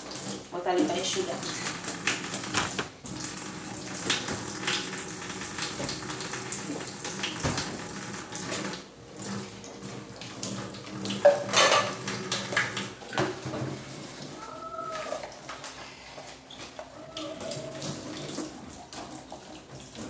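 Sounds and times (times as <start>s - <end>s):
tap water running into sink: 0.0s - 20.0s
dishes clattering: 11.2s - 13.8s.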